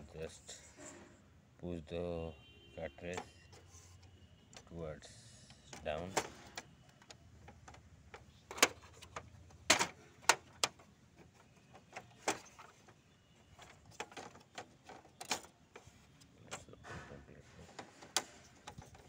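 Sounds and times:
sharp plastic clicks and knocks: 0:05.6 - 0:16.8, 0:17.6 - 0:19.0.

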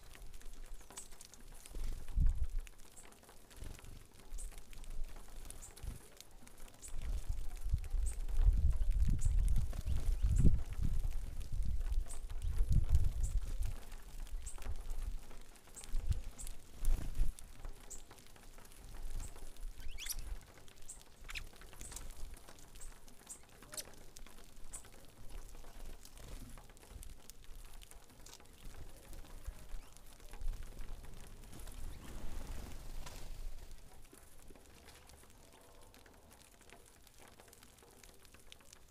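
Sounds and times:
birds pecking in seed: 0:00.0 - 0:38.9
bird chips and calls: 0:00.4 - 0:02.0, 0:04.2 - 0:10.9, 0:11.6 - 0:16.7, 0:17.7 - 0:18.2, 0:18.8 - 0:26.4, 0:28.2 - 0:30.5.

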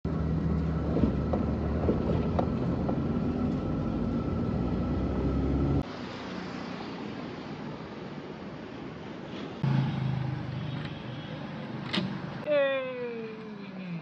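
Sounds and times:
street noise outdoors: 0:00.0 - 0:14.0
car cabin engine and road hum: 0:00.1 - 0:05.9.

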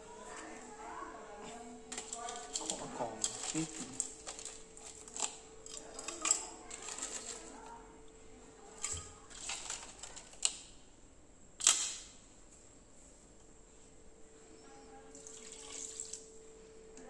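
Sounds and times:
crab shells clicking in ceramic bowl: 0:01.9 - 0:07.4.

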